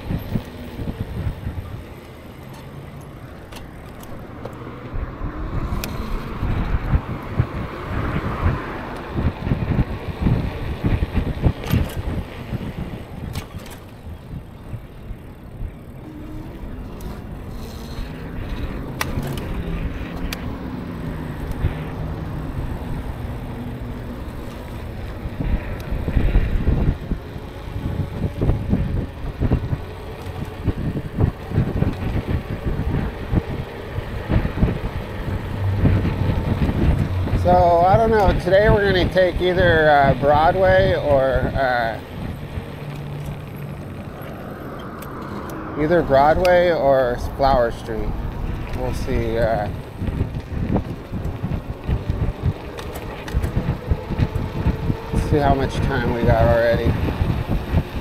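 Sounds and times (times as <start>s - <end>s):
road traffic: 0.0s - 58.0s
wind buffeting microphone: 0.0s - 58.0s
faint hum rising and falling: 14.4s - 58.0s.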